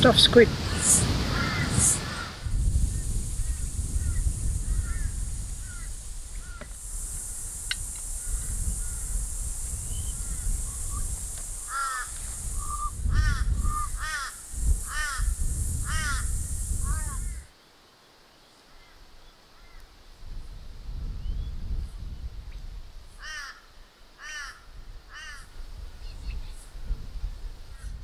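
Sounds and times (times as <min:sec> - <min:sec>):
steady high hiss: 0:00.0 - 0:28.0
crow cawing: 0:01.3 - 0:02.4, 0:04.0 - 0:06.7, 0:11.6 - 0:17.4, 0:23.2 - 0:25.5.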